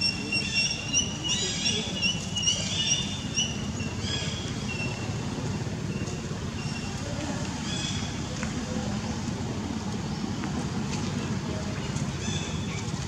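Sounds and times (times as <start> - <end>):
high-pitched chirping calls: 0.0 - 5.1.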